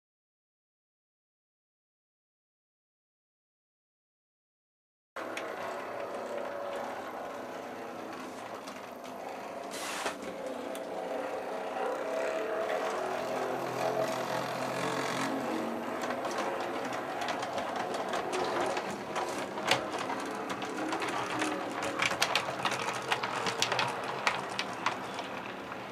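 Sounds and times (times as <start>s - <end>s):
electric motor whir: 5.2s - 22.0s
wheels ticking over rails: 5.2s - 25.9s
brief hiss: 9.7s - 10.2s.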